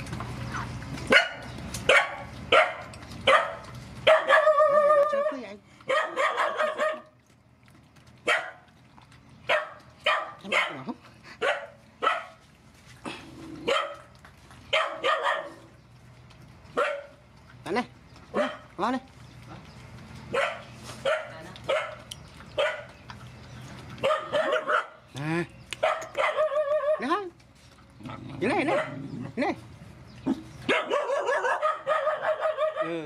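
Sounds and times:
dog barking: 1.1s - 7.1s, 8.2s - 8.6s, 9.5s - 12.4s, 13.6s - 14.1s, 14.7s - 15.6s, 16.8s - 17.2s, 18.3s - 18.7s, 20.3s - 22.9s, 24.0s - 25.0s, 25.8s - 27.1s, 28.7s - 29.0s, 30.3s - 33.0s.

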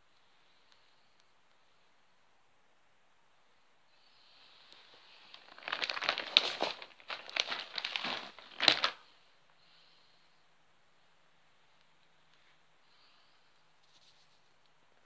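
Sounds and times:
paper rustling and crinkling: 4.8s - 9.1s.

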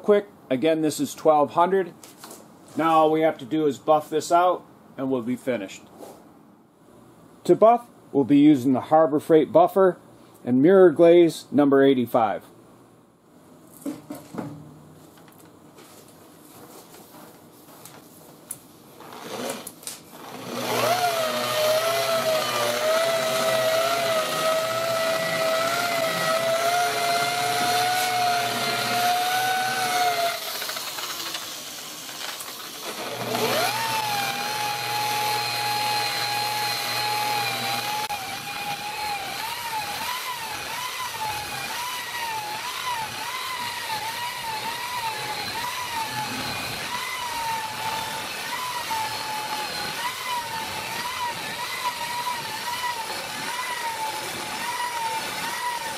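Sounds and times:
polisher motor whine: 20.6s - 31.5s, 33.0s - 39.9s, 40.8s - 55.9s.

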